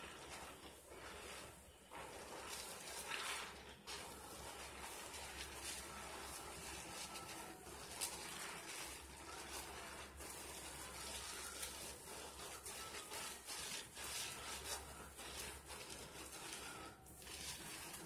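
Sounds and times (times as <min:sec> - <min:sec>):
soapy lather squishing: 0:00.0 - 0:18.0.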